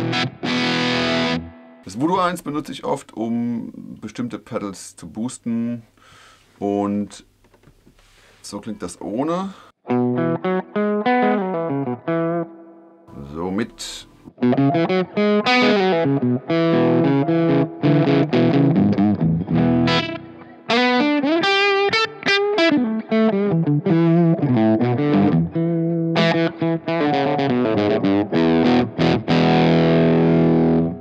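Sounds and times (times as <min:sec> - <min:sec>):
distorted electric guitar: 0:00.0 - 0:01.9, 0:09.9 - 0:31.0.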